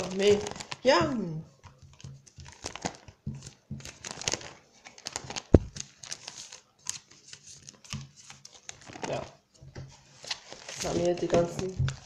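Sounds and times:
trading cards rustling: 1.9s - 9.4s, 10.0s - 12.0s.

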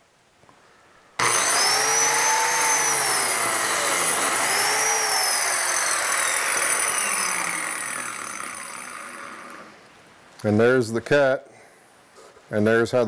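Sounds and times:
biscuit joiner motor cutting: 1.2s - 9.8s.

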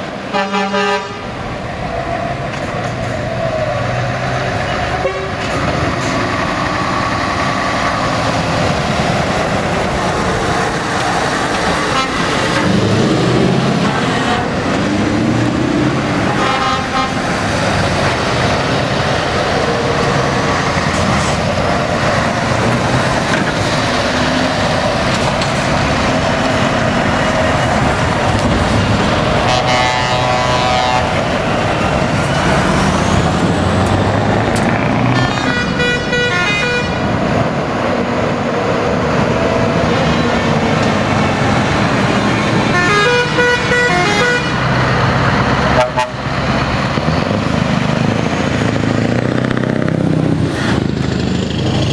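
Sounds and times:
diesel trucks driving past: 0.0s - 51.9s
truck horn blasts: 0.3s - 1.3s, 4.7s - 5.5s, 11.8s - 12.9s, 13.8s - 14.7s, 16.2s - 17.4s, 29.4s - 31.3s, 35.0s - 37.0s, 42.7s - 44.7s, 45.7s - 46.2s.

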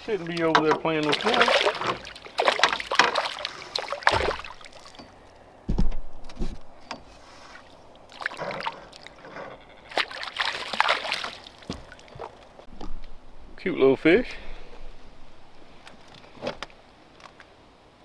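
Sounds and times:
fish splashing at water surface: 0.9s - 5.2s, 7.4s - 9.2s, 9.9s - 12.5s
low thump: 5.7s - 6.7s.

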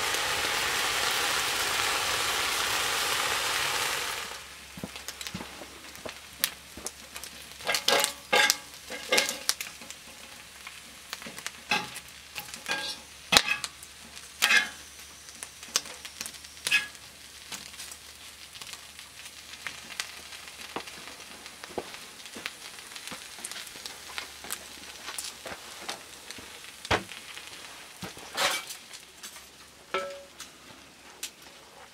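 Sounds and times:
bacon sizzling: 0.0s - 30.6s.

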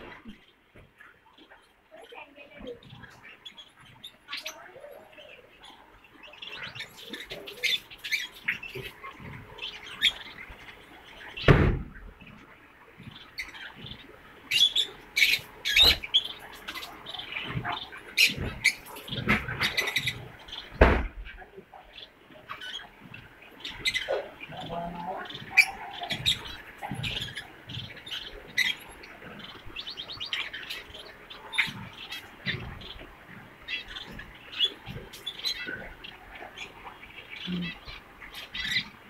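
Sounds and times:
loud knocks: 11.4s - 12.0s, 20.7s - 21.2s.

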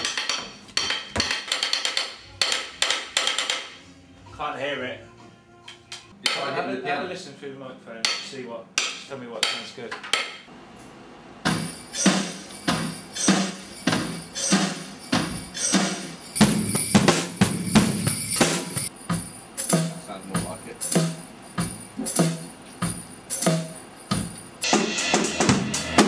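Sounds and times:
scattered drum knocks: 11.5s - 13.1s, 13.9s - 25.7s
tambourine jingling: 11.5s - 24.7s
drum kit steady beat: 11.5s - 26.0s.

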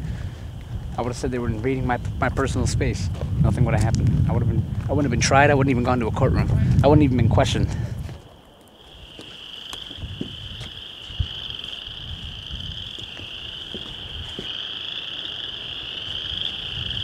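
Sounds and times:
frogs calling: 0.0s - 3.4s, 8.1s - 17.0s.

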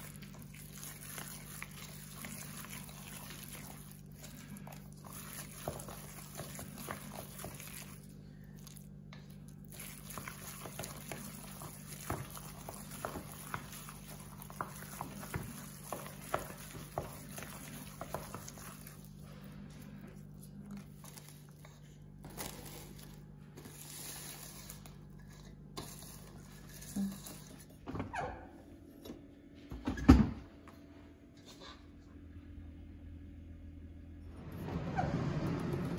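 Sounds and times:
wet squelching of meat mixture: 0.0s - 27.6s
steady low hum: 0.0s - 35.9s.

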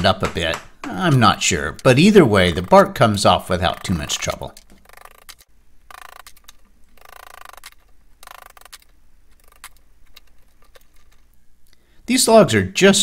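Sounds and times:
hammer tapping a chisel: 0.0s - 1.9s.

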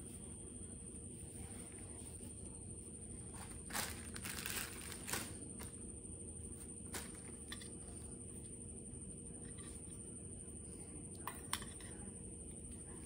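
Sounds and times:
tissue crumpling: 3.4s - 5.4s.

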